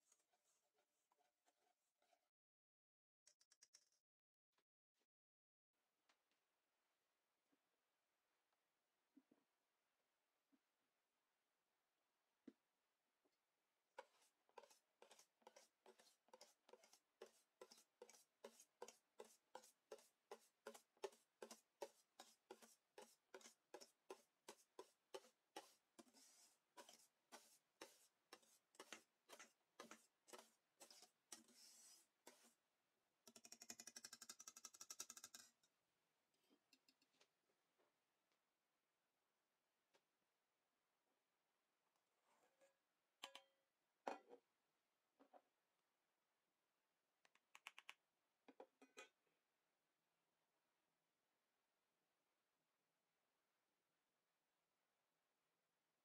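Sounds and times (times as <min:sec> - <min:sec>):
whisk strokes in metal bowl: 0:14.1 - 0:32.5.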